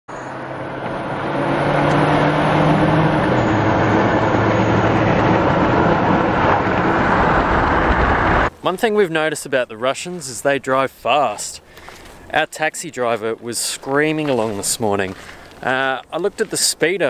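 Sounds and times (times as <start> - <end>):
low engine hum: 0.1 - 8.5
road and wind noise in car: 0.1 - 8.5.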